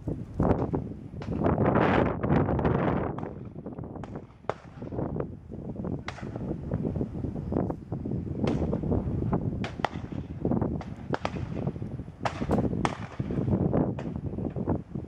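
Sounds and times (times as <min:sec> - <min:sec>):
wind rumble on microphone: 0:00.0 - 0:15.0
distant shotgun shots: 0:03.1 - 0:05.0, 0:06.0 - 0:06.5, 0:08.4 - 0:08.8, 0:09.6 - 0:14.2.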